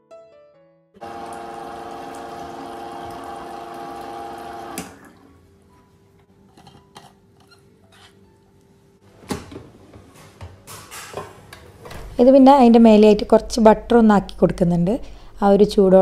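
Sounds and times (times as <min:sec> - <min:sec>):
water pouring into flask: 0:01.0 - 0:05.3
water dispenser pump humming: 0:01.0 - 0:05.4.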